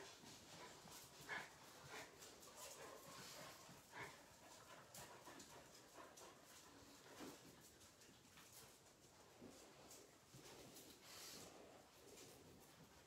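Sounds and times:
faint dog sounds on hard floor: 0.0s - 13.0s.

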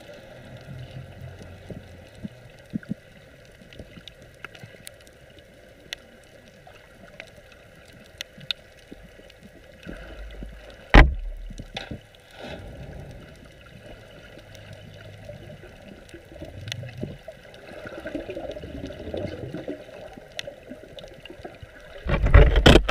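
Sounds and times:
faint clicks: 0.0s - 22.9s
gurgling underwater water rush: 0.0s - 22.9s
sharp knock: 10.9s - 11.3s.

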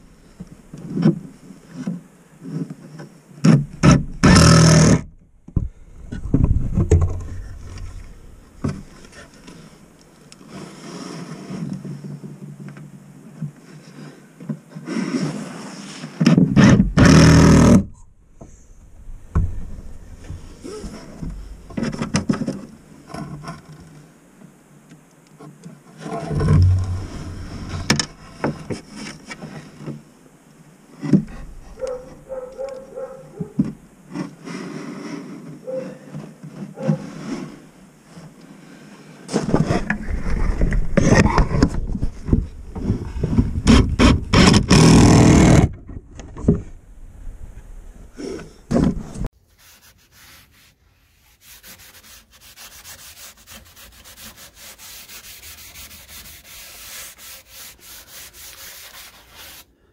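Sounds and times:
microphone handling noise: 3.7s - 9.6s, 26.2s - 29.0s, 39.3s - 47.8s.

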